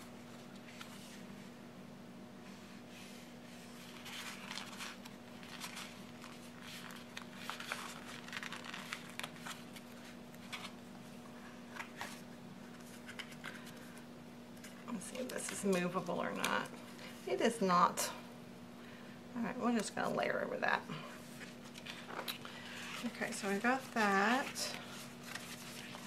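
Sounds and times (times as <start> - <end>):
faint steady hum: 0.0 - 26.0
paper rustling and scraping: 2.5 - 14.0, 21.3 - 26.0.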